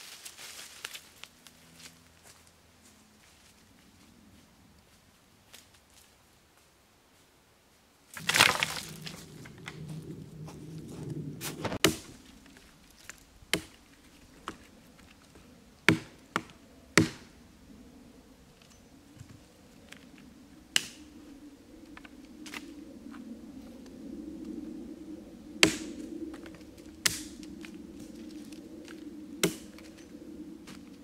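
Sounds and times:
leaf litter rustling: 0.0 - 1.9, 8.1 - 13.4
dry branches snapping: 8.1 - 17.3, 20.7 - 21.0, 25.6 - 31.0.

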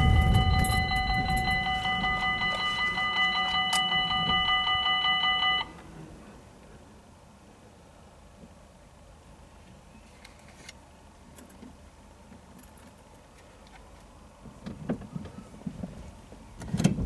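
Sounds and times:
level crossing warning bell: 0.0 - 5.8.

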